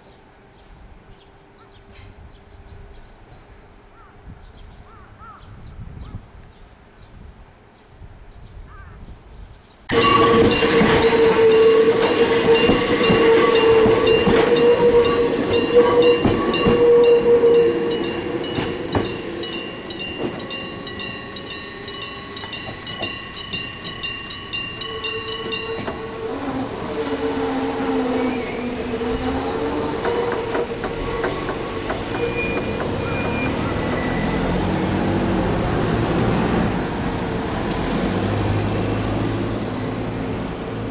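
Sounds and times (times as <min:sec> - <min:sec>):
level crossing alarm ringing: 0:09.9 - 0:35.0
electric train passing: 0:09.9 - 0:40.9
train wheels squealing: 0:09.9 - 0:40.9.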